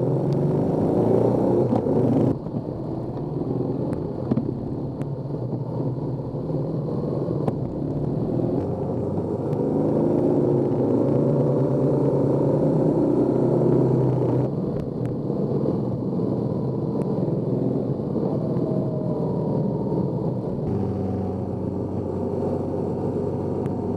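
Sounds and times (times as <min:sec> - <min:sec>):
wind and road noise: 0:00.0 - 0:23.9
motorcycle engine running: 0:20.6 - 0:23.9.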